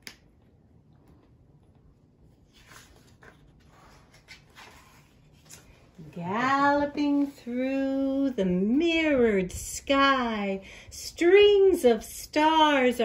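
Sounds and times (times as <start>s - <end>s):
paper pages rustling: 2.3s - 7.6s.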